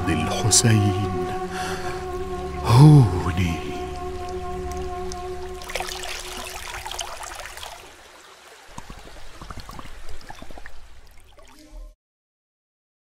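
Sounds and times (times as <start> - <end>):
water splashing and gurgling: 1.2 - 12.0.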